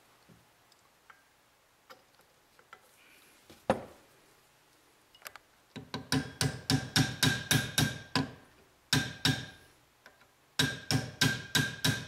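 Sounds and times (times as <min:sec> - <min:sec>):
hammer tapping a pin punch: 0:05.8 - 0:08.4, 0:10.6 - 0:12.0.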